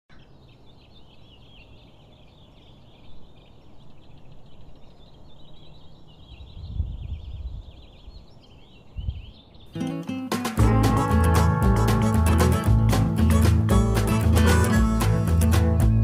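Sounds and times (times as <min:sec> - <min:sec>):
birds calling and chirping: 0:00.1 - 0:11.1, 0:11.7 - 0:16.0
wind rumble on microphone: 0:06.3 - 0:09.5.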